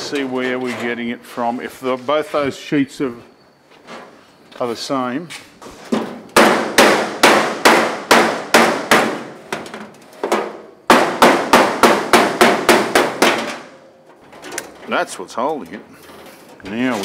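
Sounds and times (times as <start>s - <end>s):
hammer ringing on sheet metal: 6.4s - 9.4s, 10.4s - 13.8s.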